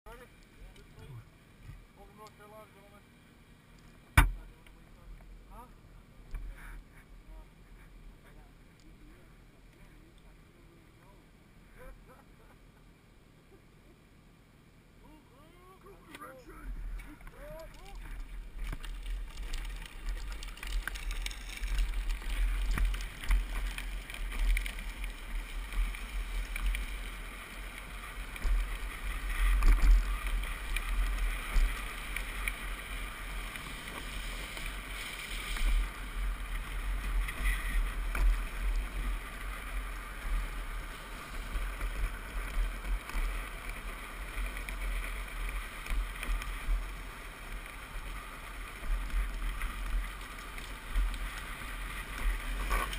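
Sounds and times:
plastic wheels scraping on asphalt: 16.7 - 52.9.

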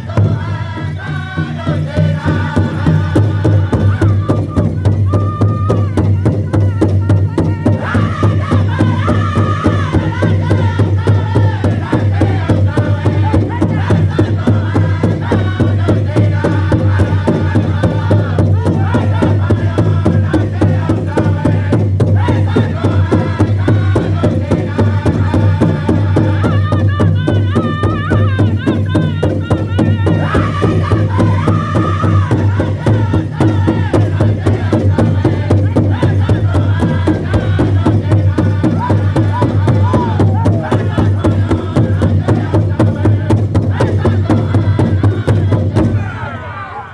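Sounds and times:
large bass drum beating: 0.0 - 46.2
group singing in high voices: 0.0 - 46.9.

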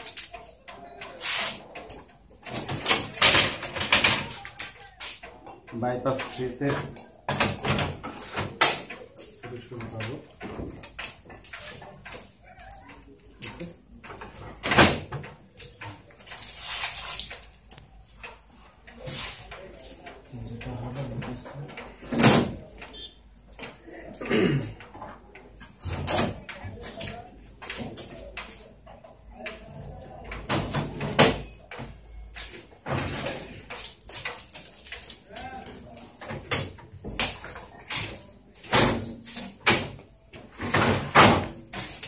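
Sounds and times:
tape crumpling and crackling: 15.6 - 18.0.

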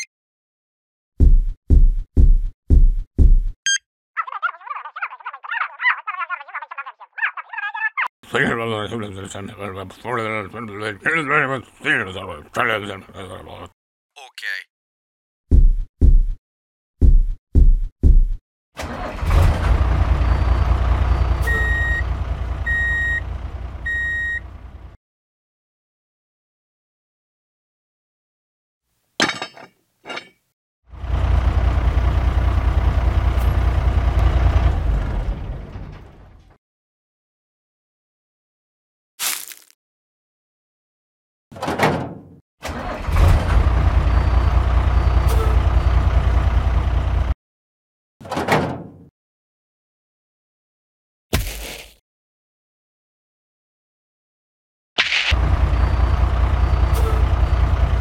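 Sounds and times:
low engine rumble: 19.2 - 25.0, 30.9 - 36.5, 55.4 - 58.0
reversing alarm beeping: 20.3 - 24.5.

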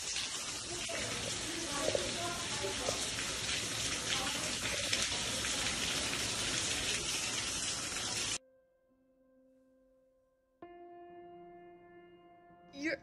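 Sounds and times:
water pouring and splashing: 0.0 - 8.4.

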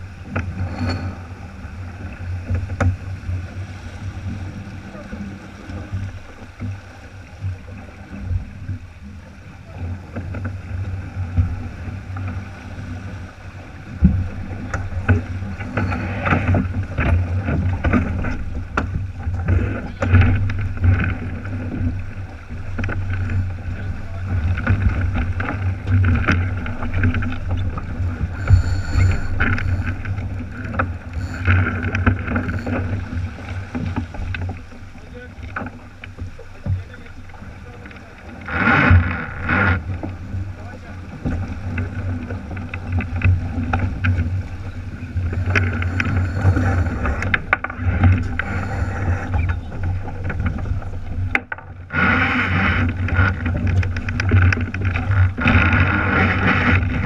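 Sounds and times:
water rushing along hull: 0.0 - 57.0
wind buffeting microphone: 0.0 - 57.0.

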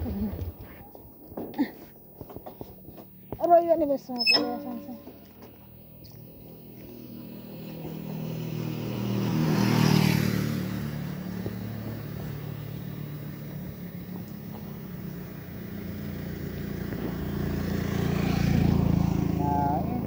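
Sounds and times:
vehicle engine passing by: 4.7 - 20.0.

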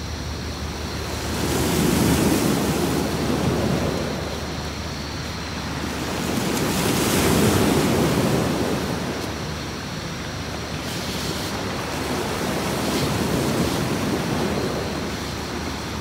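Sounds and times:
sea waves washing onto beach: 0.0 - 16.0.

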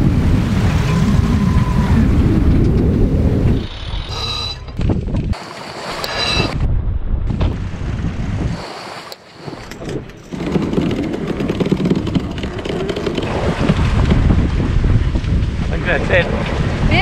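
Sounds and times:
wind buffeting microphone: 0.0 - 5.4, 6.3 - 8.8, 9.5 - 17.0
water rushing past hull: 7.3 - 17.0.

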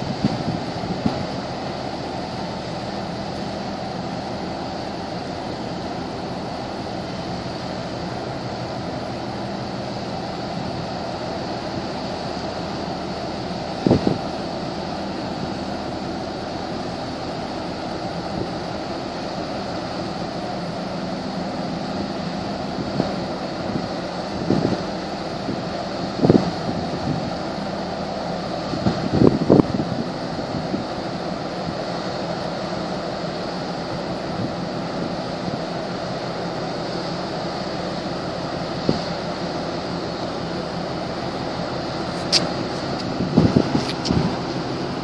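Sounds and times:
wind noise on microphone: 0.0 - 1.8, 13.6 - 16.0, 18.0 - 18.8, 21.1 - 35.8, 38.6 - 39.3, 41.8 - 45.0
marine engine drone: 0.0 - 45.0
water wash: 0.0 - 45.0.

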